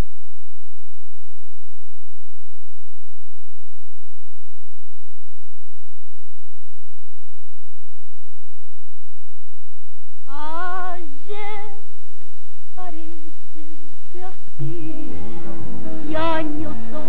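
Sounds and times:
woman singing with vibrato: 0:10.3 - 0:11.8, 0:12.8 - 0:13.2, 0:14.1 - 0:17.0
orchestral accompaniment: 0:14.6 - 0:17.0.

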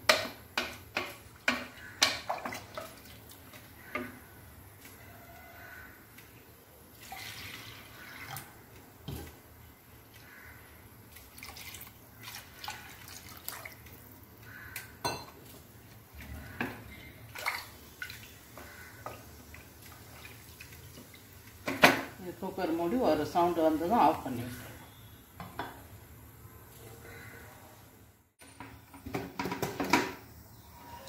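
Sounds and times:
water pouring and dripping: 0:06.1 - 0:10.3, 0:11.0 - 0:14.3, 0:15.4 - 0:21.9.

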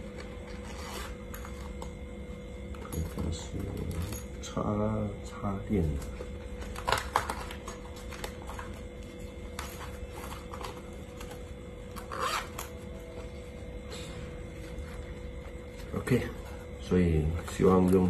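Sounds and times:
packaging rustling and scraping: 0:00.0 - 0:02.0, 0:05.8 - 0:18.0
faint steady hum: 0:00.0 - 0:18.0.

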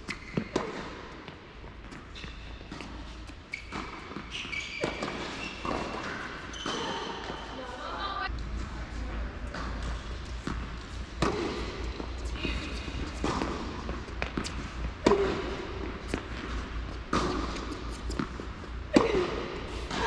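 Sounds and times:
tennis ball bouncing: 0:00.1 - 0:07.5, 0:09.5 - 0:20.0
tennis ball struck with racket: 0:10.4 - 0:12.0, 0:13.1 - 0:16.4, 0:17.0 - 0:20.0.

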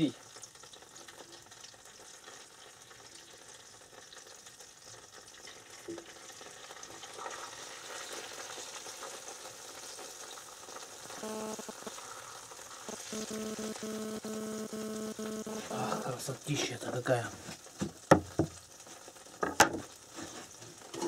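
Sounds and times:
fish sizzling in a frying pan: 0:00.0 - 0:21.0
steady pitched hum: 0:11.1 - 0:16.2.

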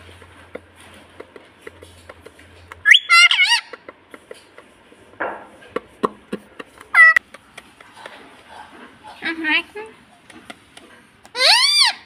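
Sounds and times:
parakeets calling: 0:02.8 - 0:03.9, 0:06.9 - 0:07.2, 0:11.3 - 0:12.0.

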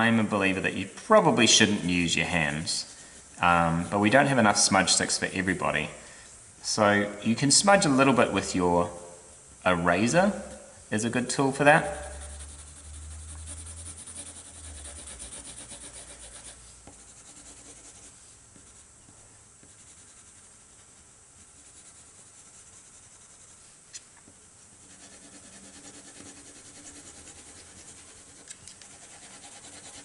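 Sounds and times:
pencil scratching on paper: 0:11.8 - 0:18.9, 0:19.6 - 0:23.6, 0:24.8 - 0:30.0.

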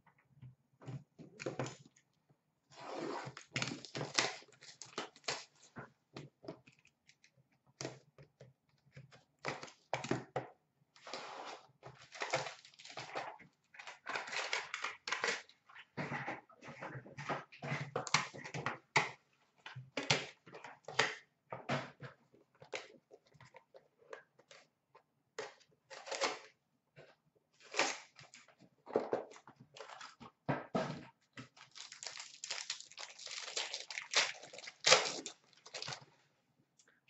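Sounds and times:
cards and wrappers rustling: 0:11.9 - 0:15.5, 0:31.5 - 0:36.2.

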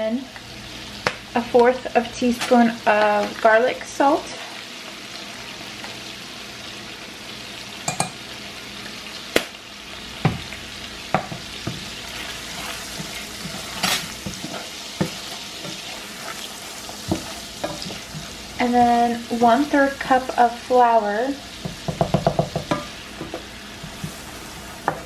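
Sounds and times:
onions sizzling in butter: 0:00.0 - 0:25.0
wooden spoon stirring: 0:11.6 - 0:19.1
spoon knocking against pan: 0:21.6 - 0:23.4.

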